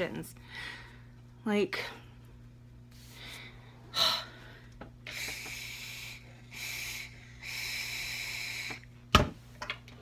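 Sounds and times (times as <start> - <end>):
hissing vape draws: 5.1 - 8.9.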